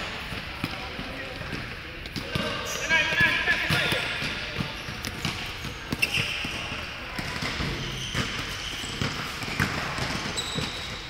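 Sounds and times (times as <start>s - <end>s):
sneakers squeaking on court: 0.0s - 11.0s
basketball bouncing on wooden floor: 3.7s - 11.0s.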